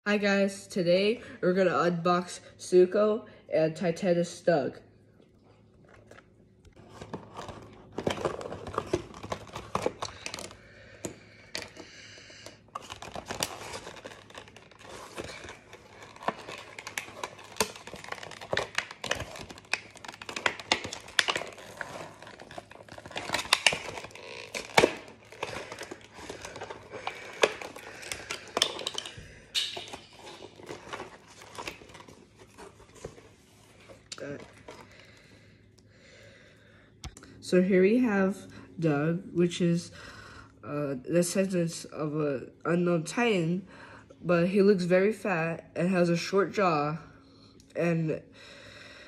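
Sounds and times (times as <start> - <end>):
plastic packaging crinkling and tearing: 5.8 - 35.3.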